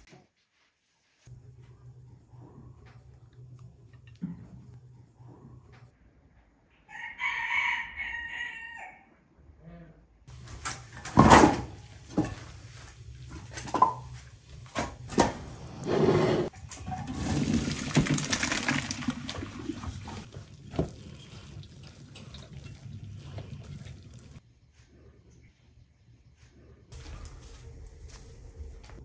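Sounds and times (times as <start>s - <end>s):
rooster crowing: 6.8s - 9.2s
water rushing into colander: 16.7s - 24.4s.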